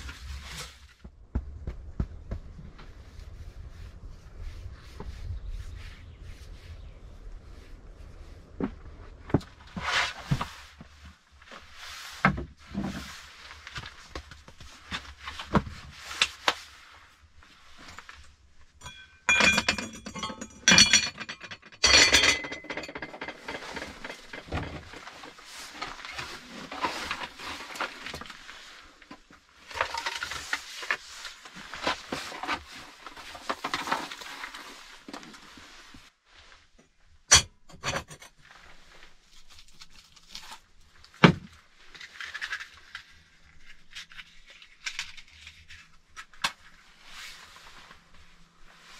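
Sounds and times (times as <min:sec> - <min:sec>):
scraping and rustling: 0:00.0 - 0:19.2, 0:20.1 - 0:36.8
clinks and rattles: 0:18.8 - 0:26.1, 0:37.3 - 0:38.4.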